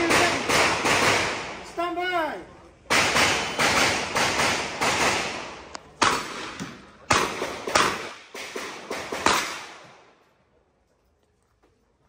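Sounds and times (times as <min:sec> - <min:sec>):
revolver shots echoing: 0:03.0 - 0:09.9.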